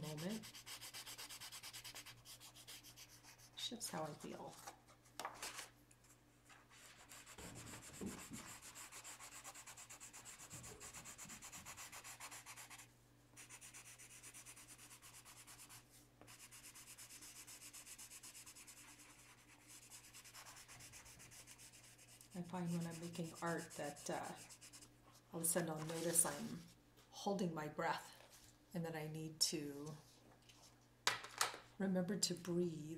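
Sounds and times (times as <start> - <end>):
pencil scratching on paper: 0.0 - 4.4, 6.7 - 24.9.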